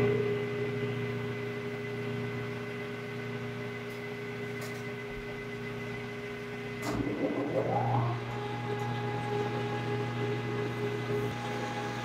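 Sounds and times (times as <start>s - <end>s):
lathe motor humming: 7.0s - 12.0s.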